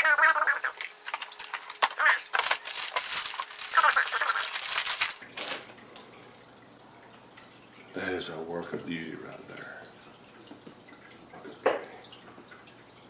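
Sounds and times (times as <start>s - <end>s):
plastic bag crinkling: 0.6s - 5.7s.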